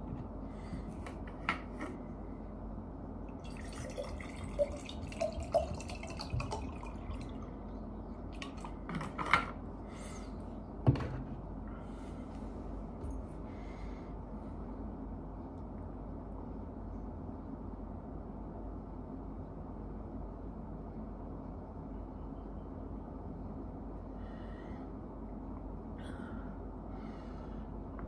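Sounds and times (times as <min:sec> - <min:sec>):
water pouring into a glass: 0:03.4 - 0:07.6.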